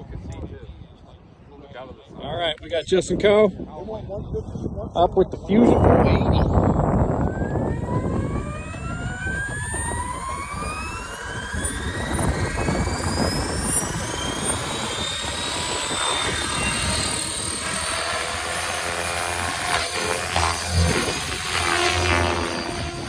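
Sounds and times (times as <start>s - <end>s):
rotor blades rushing: 5.5s - 23.0s
electric motor whine rising: 5.8s - 23.0s.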